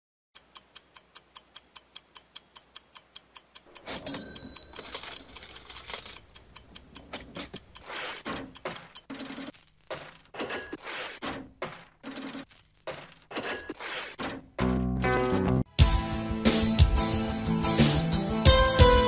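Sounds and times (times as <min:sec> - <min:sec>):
clock-like ticking: 0:00.4 - 0:09.5.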